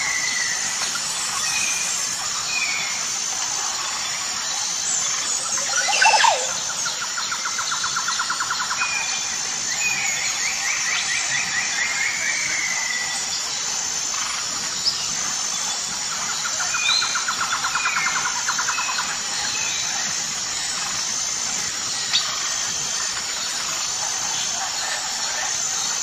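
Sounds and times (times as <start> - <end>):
insects hissing: 0.0 - 26.0
birds chirping and whistling: 4.7 - 13.4
bird trill: 5.4 - 9.0.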